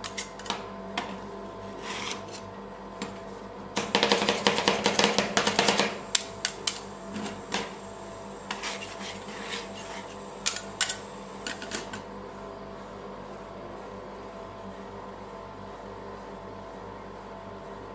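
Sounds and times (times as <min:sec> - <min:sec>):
spatula scraping: 0:01.6 - 0:02.5, 0:08.5 - 0:10.2
metal spatula chopping on steel pan: 0:03.8 - 0:06.8.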